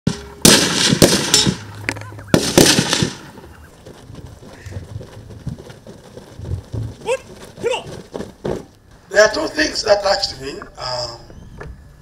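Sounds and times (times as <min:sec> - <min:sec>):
rifle shots with rolling echo: 0:00.1 - 0:03.4.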